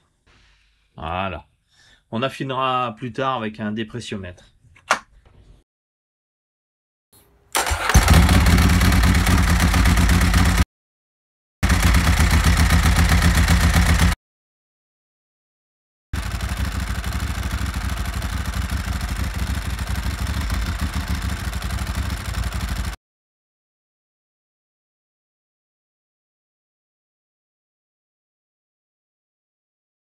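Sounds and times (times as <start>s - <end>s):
motorcycle engine running: 7.7s - 10.6s, 11.6s - 14.2s, 16.2s - 23.0s.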